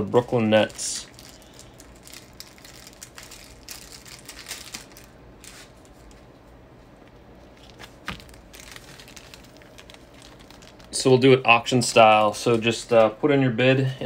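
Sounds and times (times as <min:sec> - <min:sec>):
faint clicks and rustles: 0:01.0 - 0:11.2.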